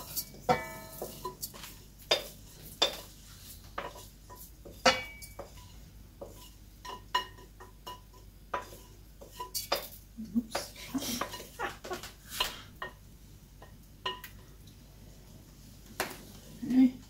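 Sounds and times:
spatula clinking on glass bowl: 0.0s - 3.1s, 3.8s - 10.6s.

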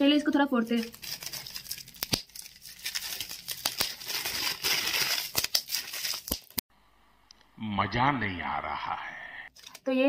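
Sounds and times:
bubble wrap crinkling: 0.7s - 6.6s
bubble wrap popping snaps: 0.9s - 6.6s.

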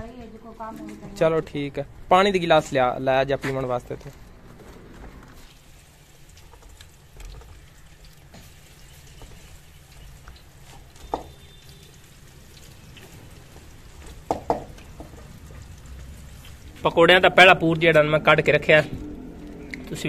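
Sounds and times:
batter sizzling in oil: 5.4s - 18.7s.

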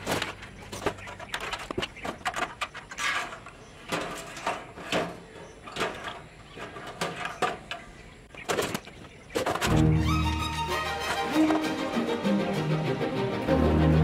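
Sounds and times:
small hard parts clicking: 0.0s - 9.9s.

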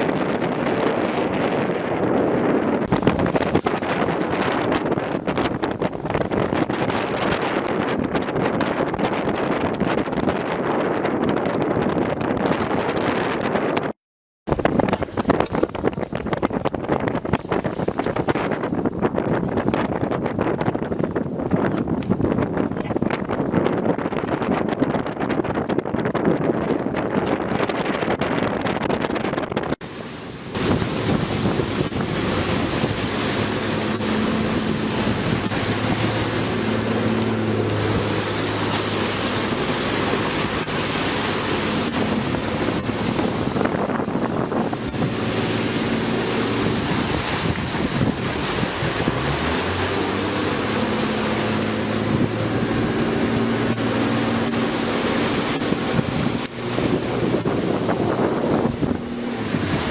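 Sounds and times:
boat engine droning: 0.0s - 11.6s, 29.8s - 59.9s
sea rushing against boat: 0.0s - 59.9s
wind buffeting microphone: 0.0s - 59.9s.

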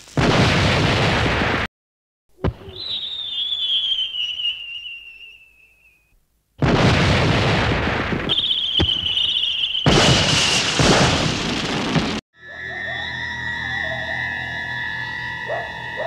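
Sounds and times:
explosion-like rumble: 0.2s - 1.7s, 6.6s - 9.2s, 9.9s - 12.2s
cartoon whistle sliding downward: 2.5s - 6.1s, 12.4s - 16.0s
wavering high whistle: 2.6s - 6.2s, 8.3s - 10.0s, 12.4s - 16.0s.

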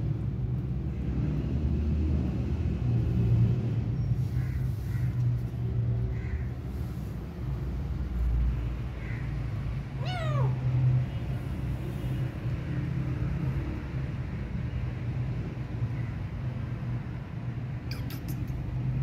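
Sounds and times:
kitten meowing: 10.0s - 10.7s.

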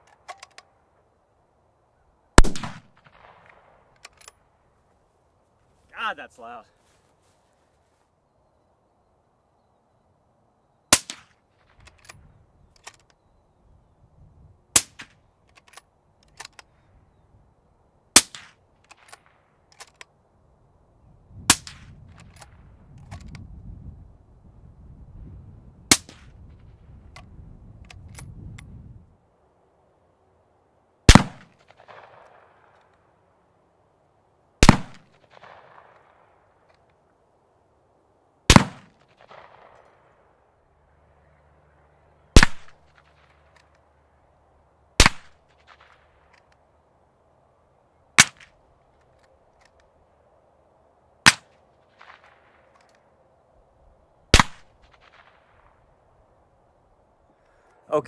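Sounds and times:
rifle bolt clicks: 0.0s - 0.7s
loud unsuppressed rifle shots: 2.4s - 4.3s, 10.9s - 12.1s, 18.1s - 19.9s, 31.1s - 32.8s, 34.6s - 36.4s, 38.5s - 40.1s, 42.3s - 43.6s, 45.0s - 46.3s, 48.2s - 48.6s, 51.2s - 52.8s, 54.3s - 55.8s
suppressed rifle shots: 2.4s - 4.4s, 10.9s - 12.2s, 18.2s - 20.0s, 31.1s - 32.8s, 34.6s - 36.4s, 38.5s - 40.1s, 42.4s - 43.6s, 45.0s - 46.4s, 48.2s - 48.6s, 51.2s - 52.8s, 54.3s - 55.8s.

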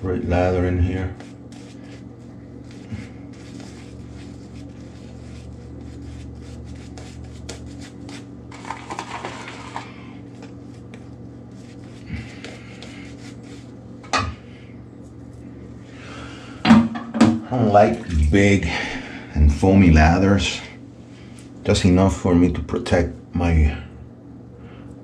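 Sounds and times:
steady low hum: 0.0s - 25.0s
shaving brush rubbing lather: 0.6s - 13.8s.

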